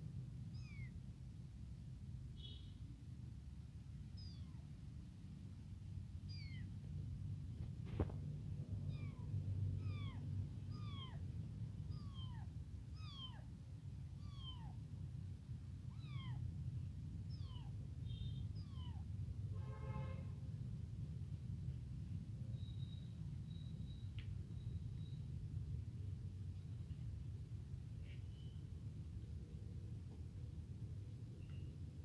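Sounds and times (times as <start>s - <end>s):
kitten meowing: 0.5s - 0.9s, 4.2s - 4.6s, 6.3s - 6.7s, 8.8s - 11.2s, 11.8s - 13.5s, 14.1s - 14.8s, 15.8s - 16.4s, 17.2s - 17.8s, 18.5s - 19.1s.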